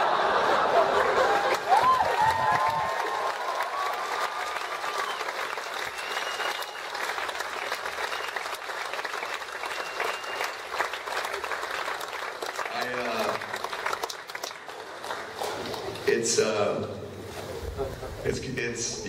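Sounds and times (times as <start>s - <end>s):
audience applauding: 0.0s - 16.2s
high whistles from crowd: 4.9s - 10.8s.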